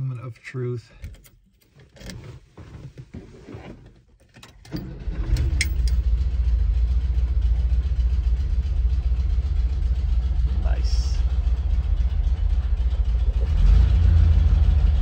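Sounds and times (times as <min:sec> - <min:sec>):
keys rattling in ignition: 0:01.0 - 0:02.2, 0:04.2 - 0:06.1
engine starting and idling: 0:04.4 - 0:10.4.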